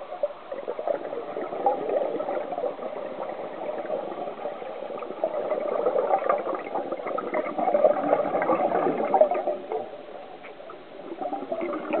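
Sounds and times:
muffled underwater air bubbling: 0:00.0 - 0:12.0.

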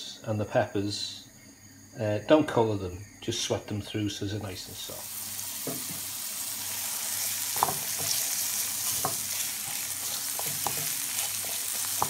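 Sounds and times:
vegetables sizzling in oil: 0:04.7 - 0:12.0
spatula scraping and tapping pan: 0:05.6 - 0:06.1, 0:07.5 - 0:12.0.

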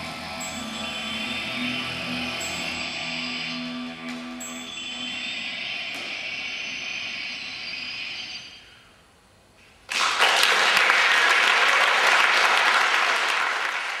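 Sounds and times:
backing music ringing notes: 0:00.0 - 0:08.8
audience applause: 0:09.9 - 0:14.0.

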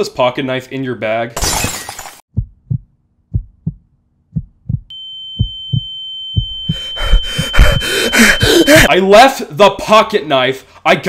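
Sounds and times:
heartbeat thumps: 0:02.3 - 0:08.9
high-pitched ringing tone: 0:04.9 - 0:08.9.

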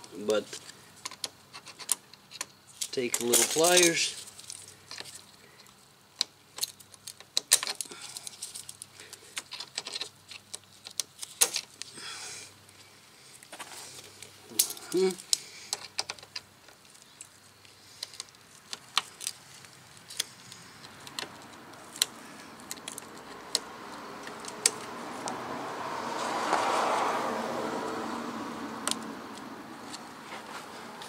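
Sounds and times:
broad rushing noise: 0:20.3 - 0:31.0.

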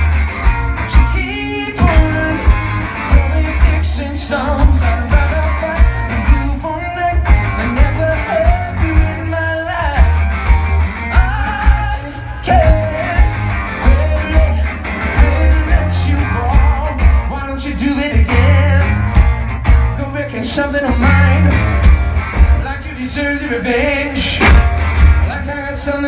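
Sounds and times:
booming bass: 0:00.0 - 0:04.0, 0:18.2 - 0:20.2, 0:20.9 - 0:22.8, 0:24.3 - 0:25.4
live rock band playing: 0:00.0 - 0:26.0
male singer: 0:00.9 - 0:10.3, 0:11.1 - 0:19.2, 0:19.8 - 0:21.8, 0:22.6 - 0:24.6, 0:25.2 - 0:26.0.

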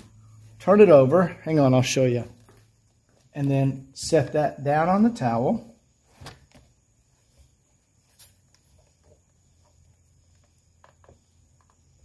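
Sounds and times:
plastic sun visor tapping and rustling: 0:06.1 - 0:06.8, 0:08.2 - 0:12.0.

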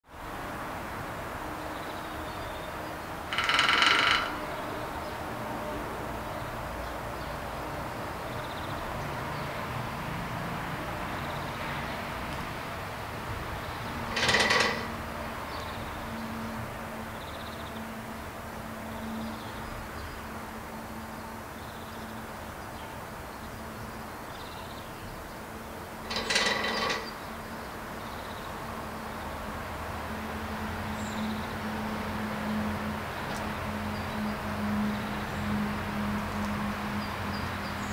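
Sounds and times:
woodpecker drumming on metal: 0:03.3 - 0:04.7, 0:14.0 - 0:15.1, 0:26.0 - 0:27.3.

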